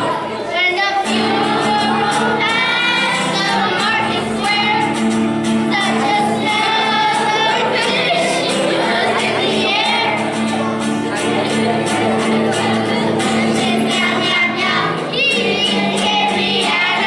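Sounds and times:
acoustic guitar: 0.0s - 17.0s
children singing together: 0.0s - 17.0s.

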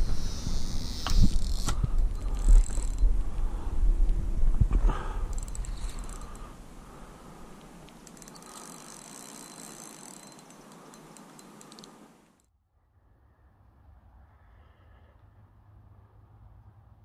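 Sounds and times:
fishing reel clicking and whirring: 0.0s - 3.2s, 5.2s - 6.6s, 7.5s - 12.0s
low rumble on microphone: 0.0s - 6.1s.

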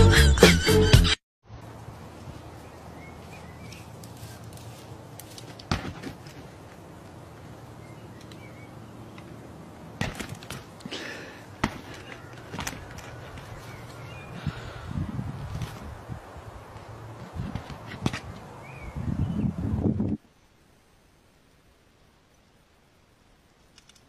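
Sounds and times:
ram butting punching bag: 5.7s - 6.2s, 11.6s - 12.7s
outdoor hiss: 20.2s - 24.0s.

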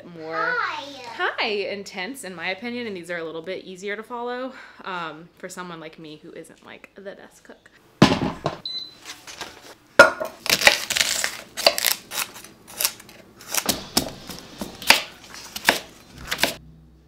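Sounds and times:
vegetables crunching: 10.4s - 16.6s
knife chopping on wooden board: 13.5s - 16.6s.

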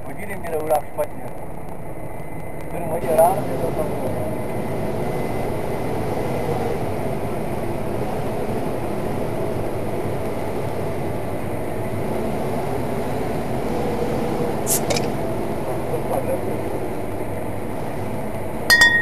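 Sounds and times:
tractor engine rumbling: 11.1s - 19.0s.

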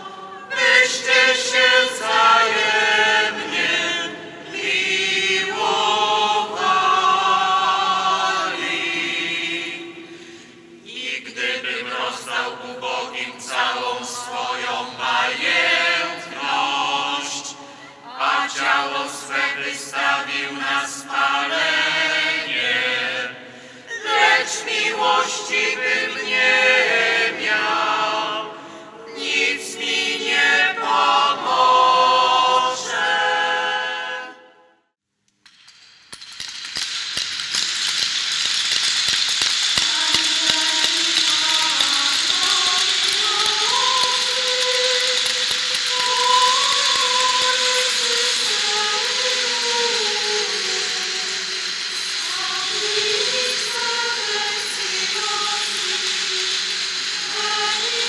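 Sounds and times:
voices singing chant: 0.0s - 34.5s, 39.6s - 58.0s
wooden ratchet clapper rattling: 35.3s - 58.0s.

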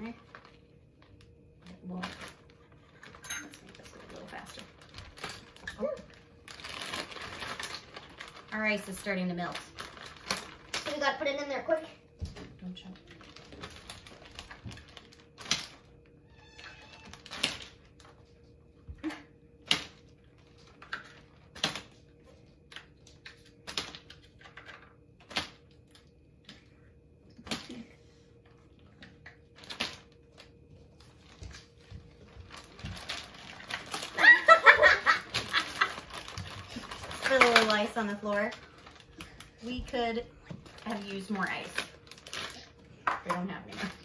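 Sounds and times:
loud laughter: 34.2s - 36.0s.

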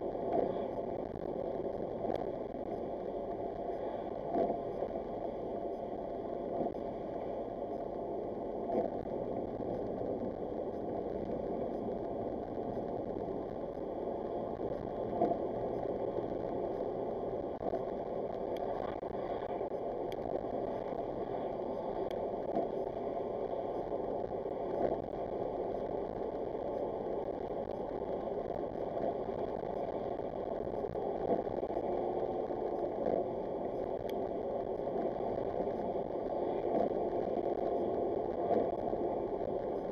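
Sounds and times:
faint clicks: 24.6s - 39.9s.

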